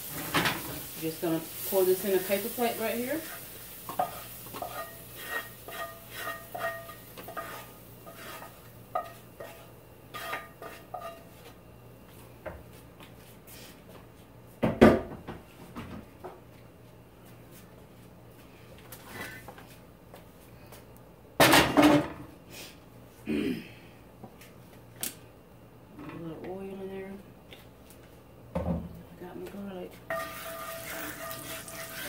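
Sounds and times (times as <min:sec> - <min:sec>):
utensil scraping iron skillet: 0:00.0 - 0:11.4, 0:30.1 - 0:32.0.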